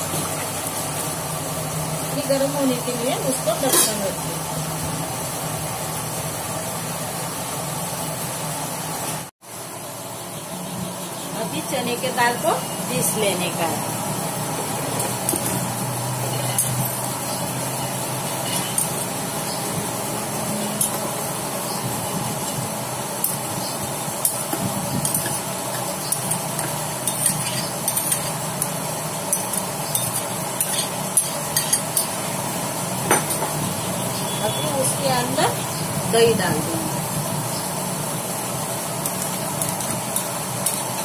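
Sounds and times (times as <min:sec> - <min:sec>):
steel spoon scraping and clinking: 0:18.4 - 0:19.1, 0:25.0 - 0:28.4, 0:29.3 - 0:32.2.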